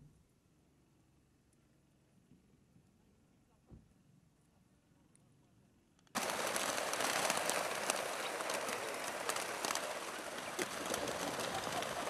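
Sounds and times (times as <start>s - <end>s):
birds wings fluttering: 6.2s - 12.0s.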